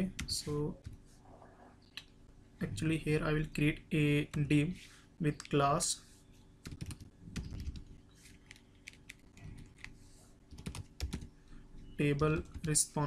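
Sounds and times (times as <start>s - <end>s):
typing on computer keyboard: 6.6s - 9.9s, 10.5s - 11.3s.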